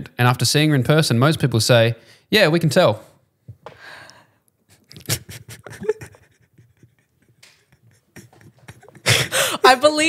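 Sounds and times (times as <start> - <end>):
soft breathy laughter: 4.7 - 9.6.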